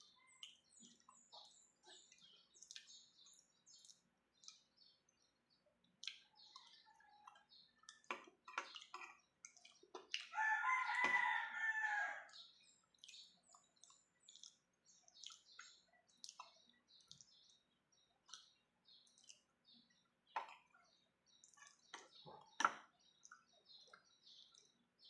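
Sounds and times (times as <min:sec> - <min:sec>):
rooster crowing: 0:10.3 - 0:12.3.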